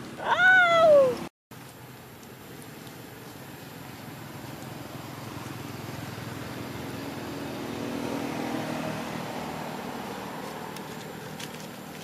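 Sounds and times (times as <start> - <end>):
vehicle engine passing by: 2.4 - 12.0.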